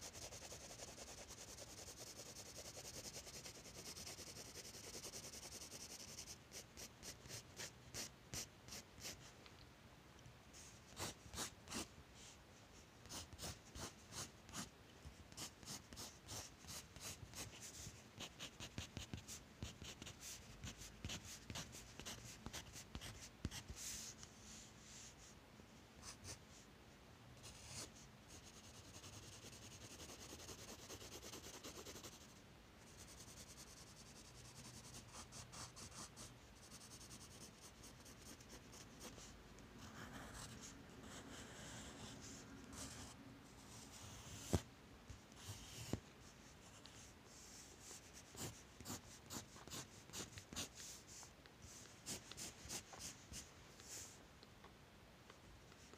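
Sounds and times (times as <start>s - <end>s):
pencil scratching on paper: 0.0s - 9.2s, 10.9s - 11.9s, 13.0s - 14.7s, 15.3s - 24.1s, 27.4s - 44.6s, 46.8s - 51.0s, 51.8s - 54.0s.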